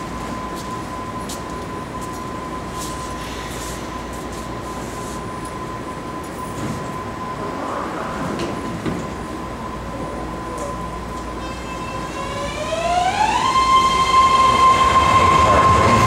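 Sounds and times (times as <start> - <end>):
train humming: 0.0 - 16.0
train doors sliding shut: 6.5 - 9.2.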